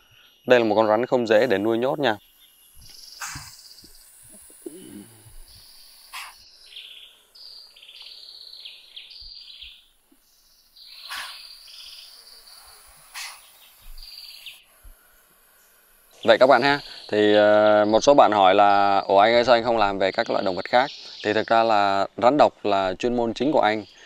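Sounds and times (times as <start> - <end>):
birds and insects chirping: 0.0 - 24.0
short hisses: 2.9 - 6.5, 11.0 - 11.5, 12.5 - 15.2.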